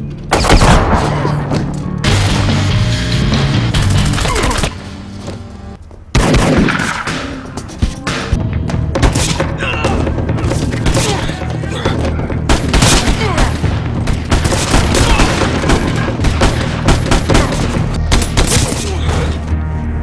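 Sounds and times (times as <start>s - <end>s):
dramatic music: 0.0s - 20.0s
rapid gunshots: 12.5s - 18.8s.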